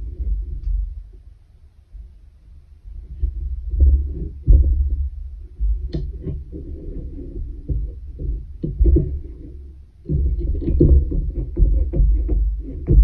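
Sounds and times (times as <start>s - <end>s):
thumps and rubbing on wooden loom: 3.8s - 13.0s.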